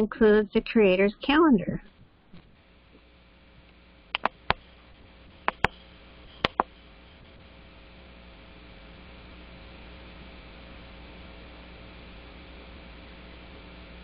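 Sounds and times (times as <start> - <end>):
phone line hiss and hum: 0.0 - 14.0
sharp clicks: 4.1 - 4.6, 5.4 - 5.8, 6.4 - 6.7.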